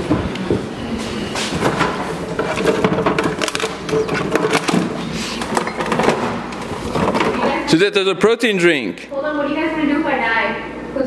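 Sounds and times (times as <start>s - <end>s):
refrigerator door opening: 1.3s - 7.5s.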